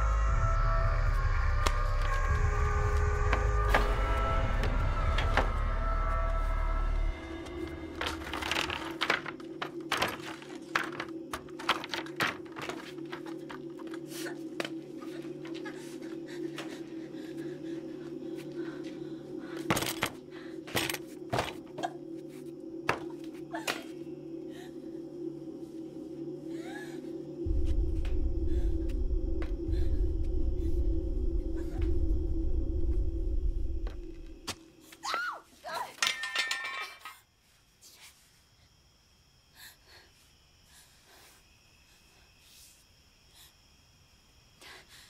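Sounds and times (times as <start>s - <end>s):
steady low drone: 0.0s - 8.6s, 13.0s - 34.5s
wooden boards knocking and scraping: 7.9s - 13.2s
deep rumble: 21.8s - 34.5s.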